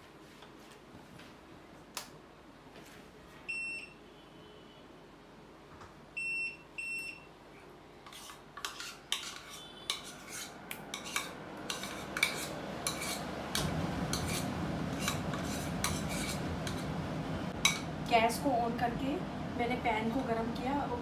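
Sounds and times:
plastic bowl scraping a frying pan: 0:08.1 - 0:17.0
low rushing noise: 0:12.6 - 0:20.4.

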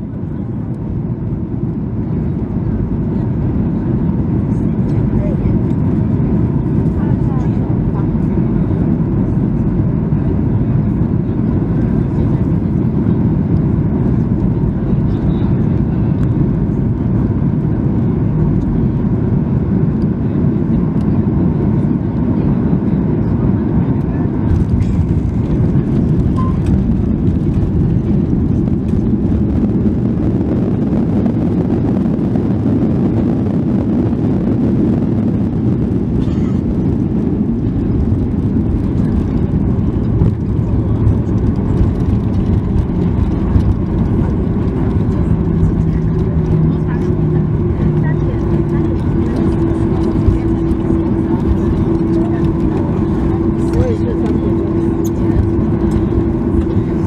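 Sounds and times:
airflow and engine rumble in cabin: 0:00.0 - 0:57.0.

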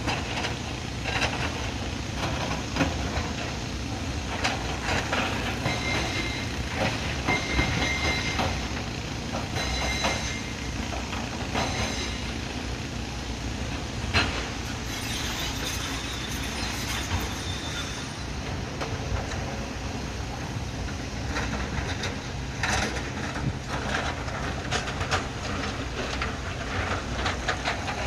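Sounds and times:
heavy machinery rumbling: 0:00.0 - 0:28.0
high squeals: 0:14.6 - 0:18.5.

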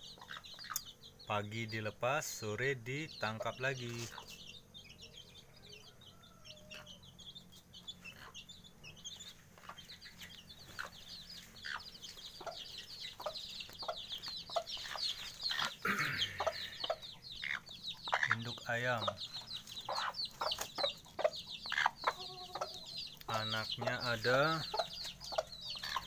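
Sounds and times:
hen clucking: 0:00.0 - 0:01.0, 0:02.9 - 0:26.0
chicks peeping: 0:00.0 - 0:26.0.

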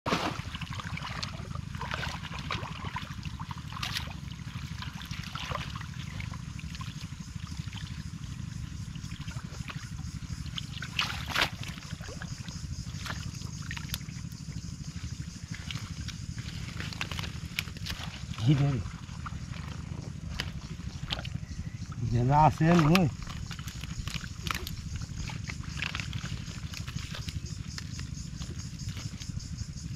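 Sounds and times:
muddy water sloshing: 0:00.0 - 0:29.9
steady low rumble: 0:11.6 - 0:29.9
plants rustling: 0:15.7 - 0:21.3, 0:22.5 - 0:29.4.

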